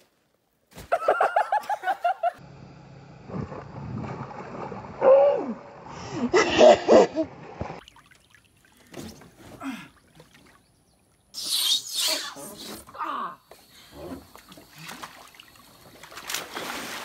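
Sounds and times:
pool water splashing: 7.7s - 11.1s, 14.2s - 17.0s.

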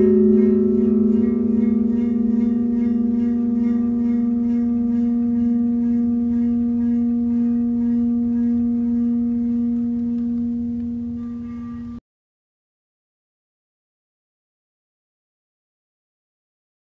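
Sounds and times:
rubbed metal plate singing: 0.0s - 12.0s.

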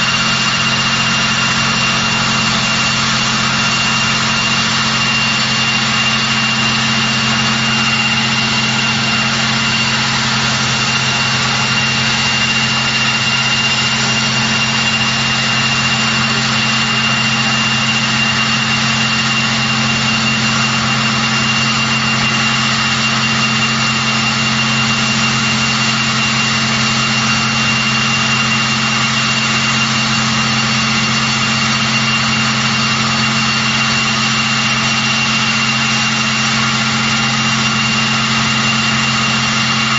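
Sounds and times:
low drone: 0.0s - 29.2s
high-pitched turbine whine: 0.0s - 39.9s
turboprop engines running: 0.0s - 39.9s.

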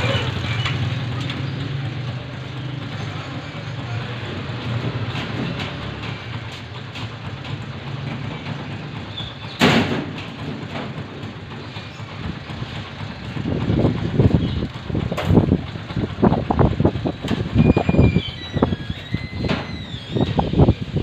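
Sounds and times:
low background rumble: 7.2s - 21.0s.

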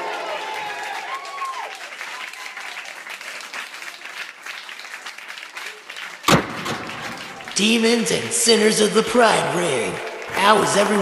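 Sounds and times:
crowd applauding: 0.0s - 11.0s
loud thump: 6.3s - 7.5s.

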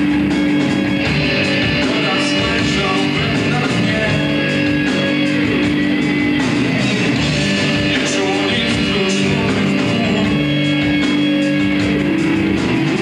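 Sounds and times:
rock band playing live: 0.0s - 13.0s.

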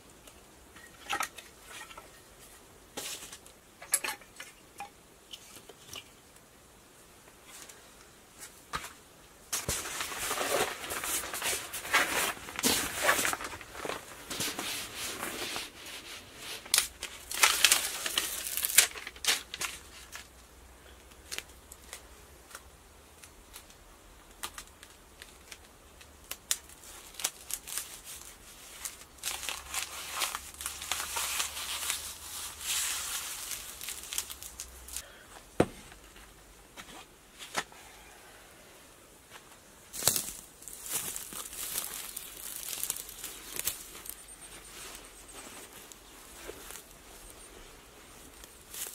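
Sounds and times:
paper sheeting rustling: 9.6s - 20.2s, 26.8s - 35.0s, 40.0s - 47.4s.

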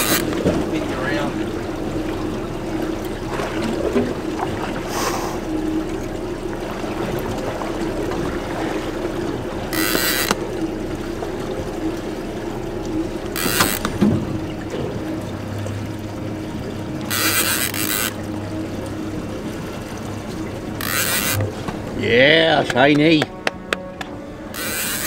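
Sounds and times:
fishing reel drag buzzing: 0.0s - 0.5s, 9.6s - 10.6s, 13.2s - 14.0s, 17.0s - 18.6s, 20.6s - 21.5s, 24.5s - 25.0s
outboard motor running: 0.0s - 25.0s.

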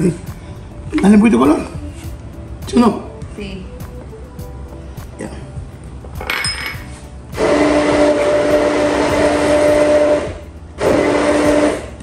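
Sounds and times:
immersion blender whirring: 7.4s - 12.0s.

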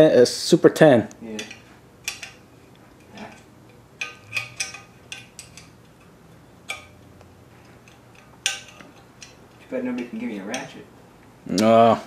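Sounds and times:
wrench clinking on nuts: 1.3s - 2.4s, 3.0s - 6.1s, 6.7s - 7.0s, 7.8s - 10.8s.

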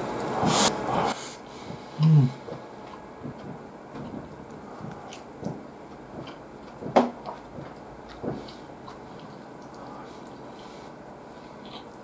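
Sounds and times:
chewing: 1.7s - 10.8s.

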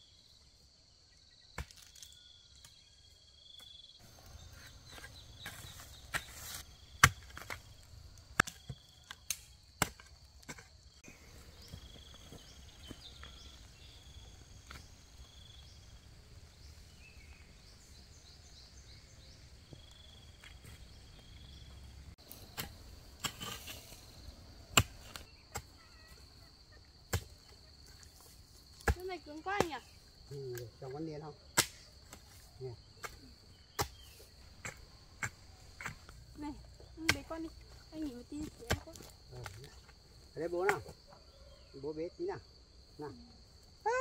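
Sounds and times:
insects trilling: 0.0s - 44.0s
hand tool chopping: 31.6s - 32.4s, 33.0s - 36.2s.

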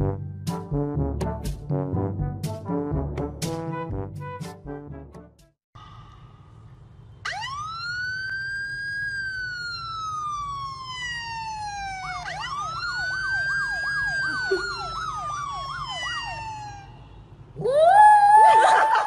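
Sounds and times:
electronic police siren: 7.2s - 17.1s.

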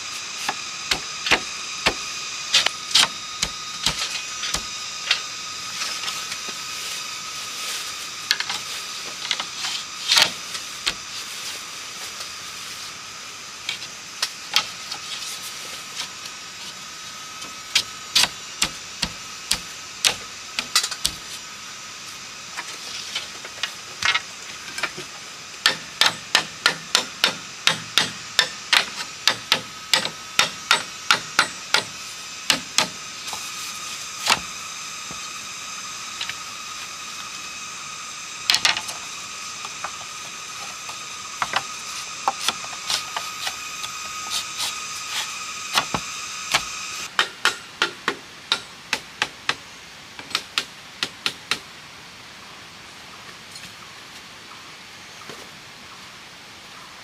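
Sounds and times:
steady high drone: 0.0s - 47.1s
machete knocking bamboo slats: 25.6s - 33.0s.

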